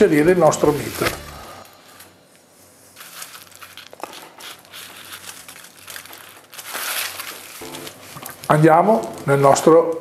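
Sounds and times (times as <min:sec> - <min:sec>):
aluminium foil crinkling: 0:02.8 - 0:09.8.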